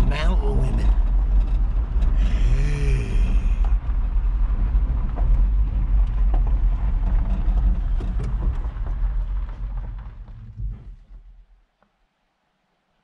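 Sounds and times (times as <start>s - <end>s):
vehicle engine and road rumble: 0.0s - 11.7s
light knocks and rattles: 4.5s - 11.3s.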